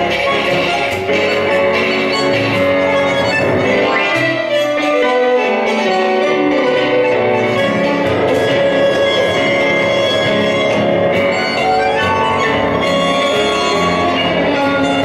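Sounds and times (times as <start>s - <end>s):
piano: 0.0s - 15.0s
violin melody: 0.0s - 15.0s.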